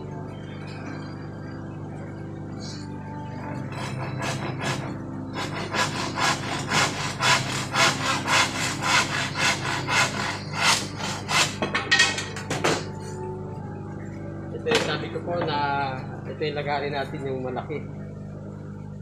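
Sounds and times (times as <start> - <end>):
hand saw cutting wood: 3.6 - 11.6.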